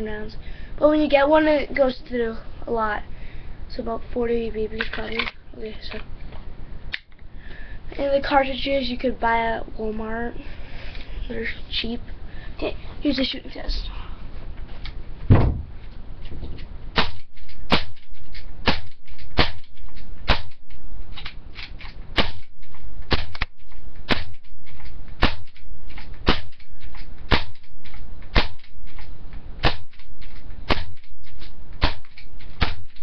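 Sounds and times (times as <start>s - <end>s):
airsoft pistol shots popping: 17.0s - 20.7s, 21.6s - 24.5s, 25.2s - 33.0s.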